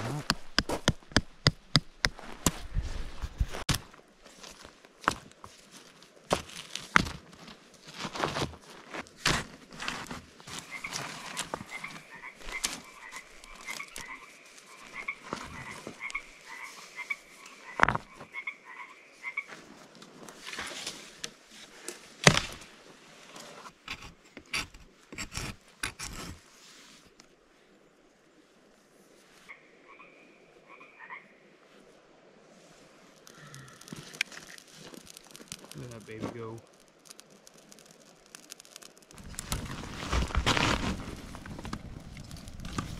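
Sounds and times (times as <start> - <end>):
frog croaking: 10.6 - 19.5, 29.5 - 31.4, 33.2 - 34.2.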